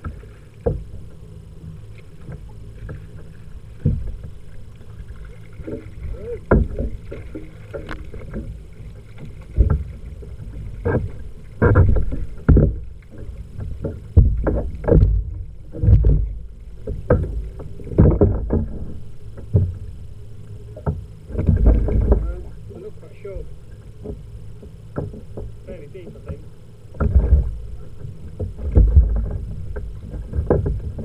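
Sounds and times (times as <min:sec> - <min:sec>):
thumps and knocks on kayak hull: 0:00.0 - 0:01.1, 0:02.2 - 0:04.4, 0:05.5 - 0:19.9, 0:20.7 - 0:22.5, 0:24.0 - 0:31.0.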